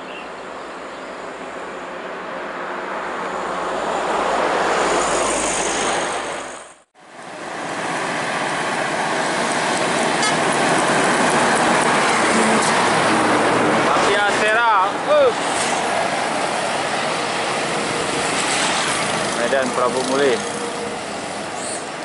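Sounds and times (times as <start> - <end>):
buses and trucks passing: 0.0 - 22.0.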